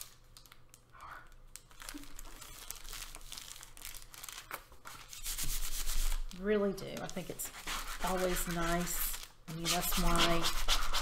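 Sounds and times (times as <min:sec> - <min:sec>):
paper crinkling and rustling: 0:01.5 - 0:07.5.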